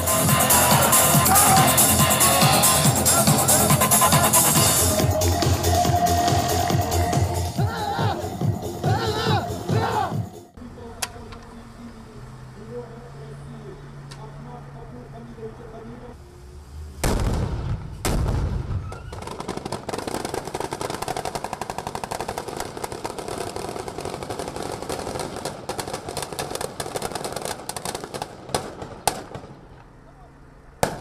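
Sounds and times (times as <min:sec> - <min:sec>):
heavy low boom: 0:17.0 - 0:19.3
automatic gunfire: 0:18.1 - 0:29.6.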